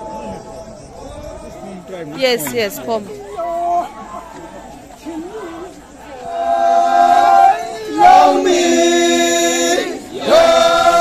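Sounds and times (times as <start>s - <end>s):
group chanting in long held notes: 5.4s - 11.0s.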